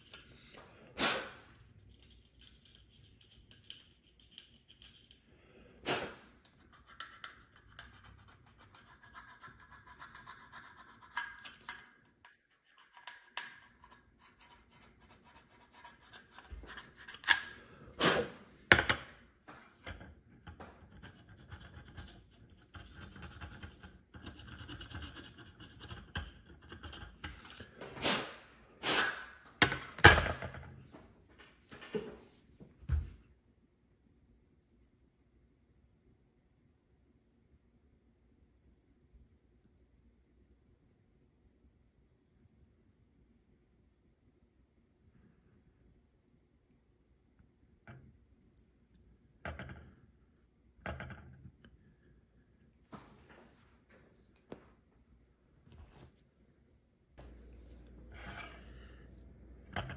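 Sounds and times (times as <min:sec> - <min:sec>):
parts knocking on countertop: 0:18.7 - 0:19.1, 0:29.6 - 0:30.7
faint rubbing: 0:57.2 - 0:59.9.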